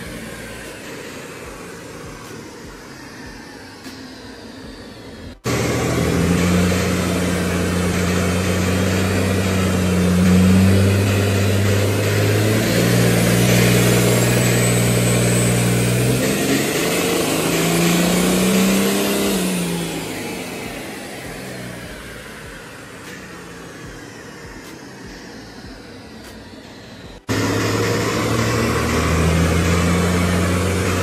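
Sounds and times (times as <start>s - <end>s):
diesel engine running under load: 0.0s - 31.0s.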